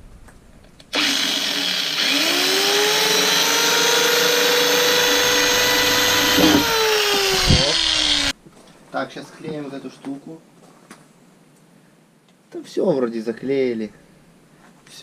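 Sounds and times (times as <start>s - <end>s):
electric drill boring into plastic: 0.9s - 8.3s.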